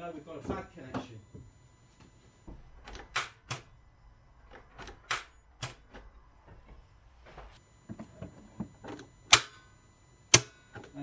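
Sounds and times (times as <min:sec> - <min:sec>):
starter solenoid clicking: 0:08.8 - 0:09.6, 0:10.3 - 0:11.0.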